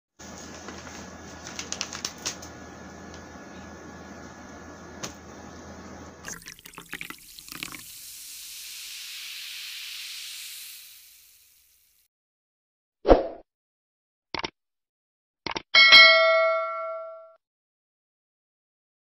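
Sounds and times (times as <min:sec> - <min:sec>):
sharp clicks and crinkles: 0:01.4 - 0:02.5
rushing hiss: 0:07.9 - 0:12.0.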